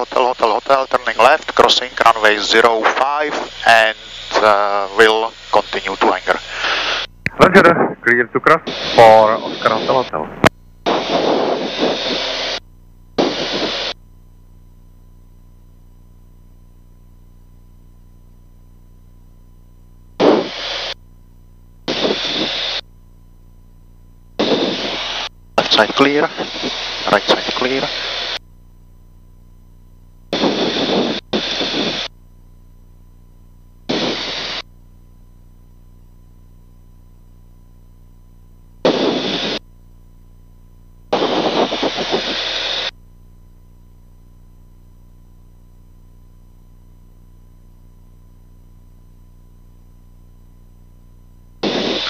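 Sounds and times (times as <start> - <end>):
radio static bursts: 0.0 - 12.6, 13.2 - 14.0, 20.2 - 21.0, 21.9 - 22.8, 24.4 - 28.4, 30.3 - 32.1, 33.9 - 34.6, 38.8 - 39.6, 41.1 - 43.0, 51.6 - 52.0.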